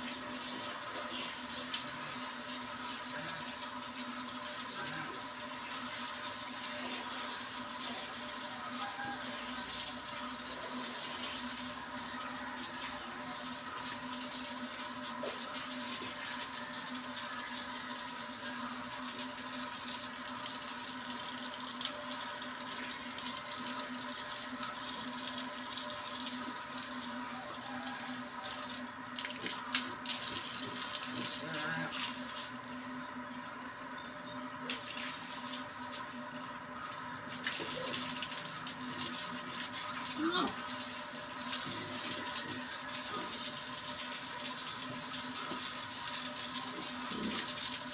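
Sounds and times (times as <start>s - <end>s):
hose spraying water on concrete: 0.0s - 32.6s, 37.3s - 47.9s.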